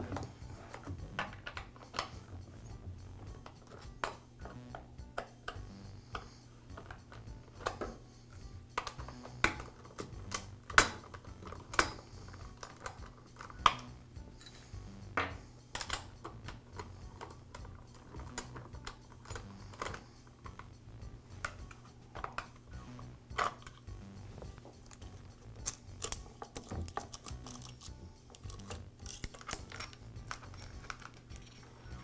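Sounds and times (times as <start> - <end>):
metallic clicks and clinks: 5.2 - 14.8, 15.6 - 20.7, 24.8 - 32.0.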